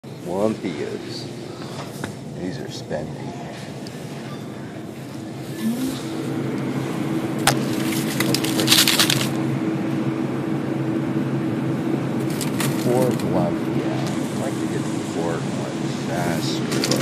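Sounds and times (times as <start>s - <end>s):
freezer humming: 4.4s - 17.0s.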